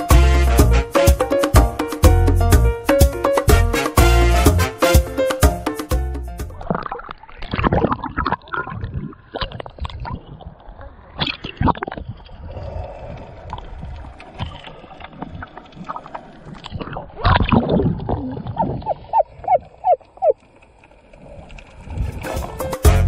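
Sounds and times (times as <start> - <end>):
water sloshing and gurgling: 6.4 - 22.8
water splashing: 6.6 - 22.8.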